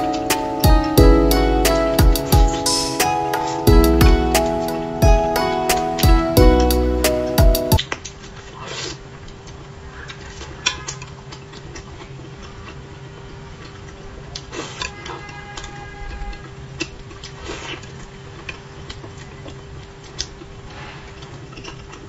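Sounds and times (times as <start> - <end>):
soft chewing: 7.8 - 22.0.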